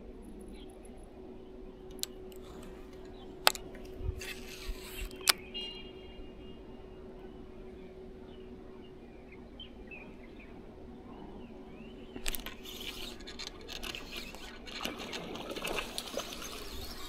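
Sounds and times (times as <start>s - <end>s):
fishing reel cranking: 4.2s - 5.3s, 12.2s - 17.0s
faint bird chirps: 4.5s - 13.2s.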